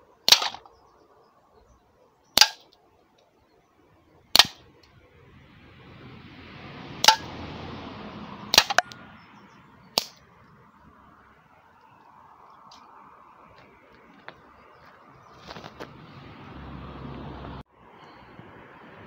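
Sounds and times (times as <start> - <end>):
air pistol shots: 0.3 - 0.6, 2.4 - 2.7, 4.3 - 4.6, 8.5 - 8.8
rushing noise: 4.2 - 13.8.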